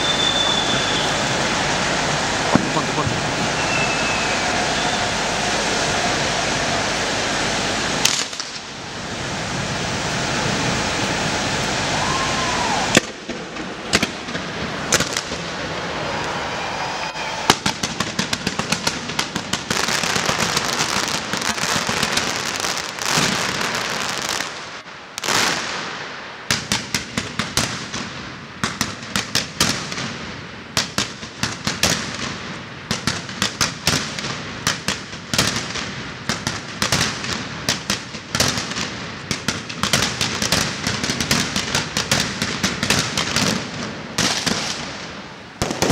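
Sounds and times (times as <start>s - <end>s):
steady rushing roar: 0.0s - 24.2s
fireworks bangs and crackling: 0.0s - 45.9s.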